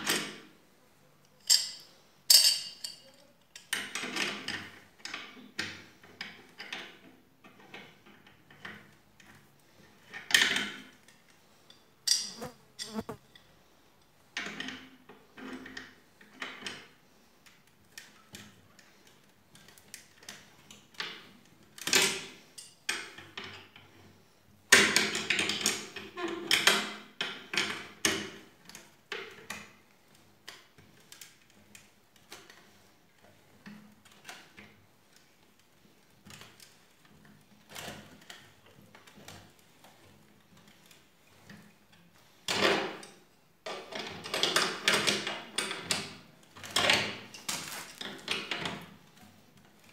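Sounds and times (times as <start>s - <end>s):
wrench clicking and scraping: 1.4s - 3.7s.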